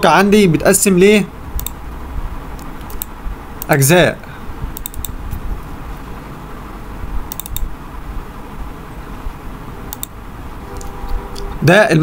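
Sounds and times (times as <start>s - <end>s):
low background hum: 0.0s - 12.0s
computer mouse clicks: 1.6s - 1.8s, 2.5s - 3.7s, 4.7s - 5.4s, 7.3s - 7.7s, 9.9s - 10.2s.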